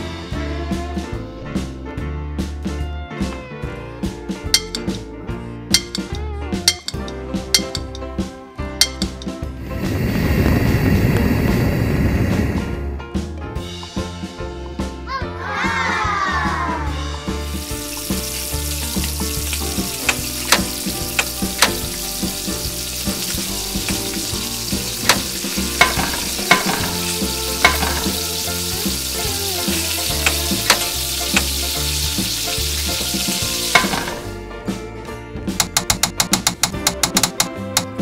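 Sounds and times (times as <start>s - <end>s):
spatula clicking against pan: 5.8s - 8.1s, 8.8s - 9.3s, 19.8s - 22.0s, 25.0s - 27.0s, 27.6s - 28.1s, 30.2s - 31.6s, 35.6s - 38.0s
food sizzling in pan: 17.4s - 34.3s.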